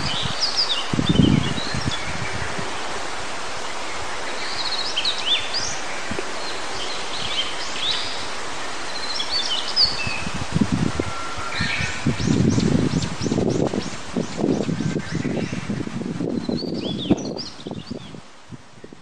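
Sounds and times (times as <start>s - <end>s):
mountain stream rushing: 0.0s - 18.9s
wind: 0.0s - 19.0s
bird singing high chirps: 11.0s - 15.6s, 16.4s - 18.2s.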